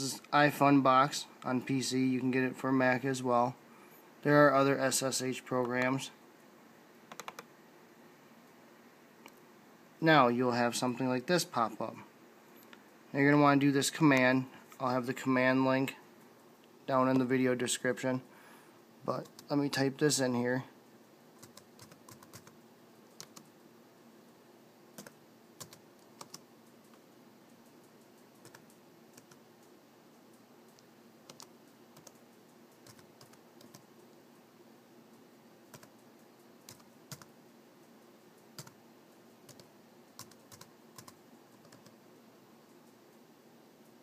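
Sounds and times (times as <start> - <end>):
laptop keystrokes: 7.1 - 7.5, 21.4 - 22.6, 23.2 - 23.5, 25.0 - 27.0, 28.4 - 29.4, 30.7 - 32.2, 35.7 - 36.0, 36.6 - 37.3, 39.5 - 42.0.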